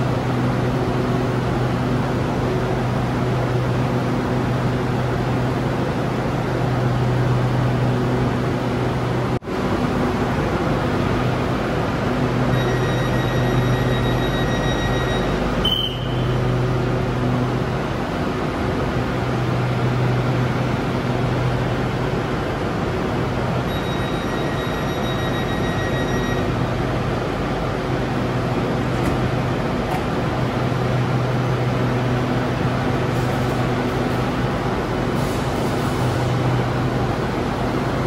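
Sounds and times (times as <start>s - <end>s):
train equipment humming: 0.0s - 38.0s
thin high tone: 12.5s - 16.4s.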